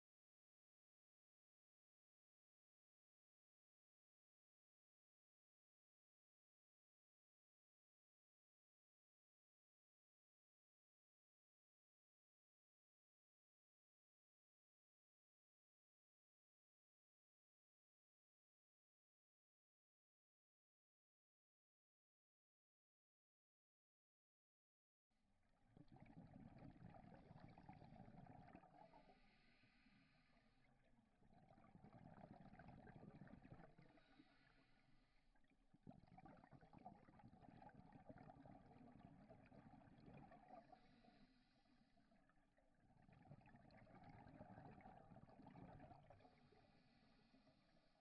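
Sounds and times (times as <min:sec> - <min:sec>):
bubbling exhalations: 0:31.3 - 0:34.9, 0:35.9 - 0:41.4.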